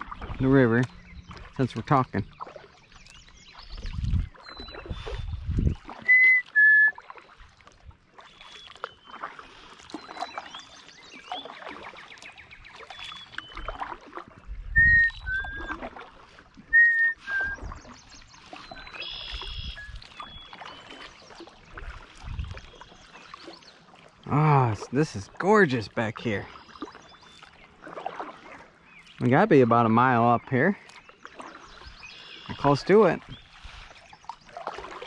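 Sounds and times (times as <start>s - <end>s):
faint high birdsong: 0.0s - 7.4s, 8.2s - 14.0s, 14.8s - 15.8s, 16.7s - 21.8s, 25.4s - 34.8s
kayak paddle splashes: 0.0s - 35.0s
person whistling two-note call: 6.0s - 7.0s, 14.8s - 15.8s, 16.7s - 17.6s.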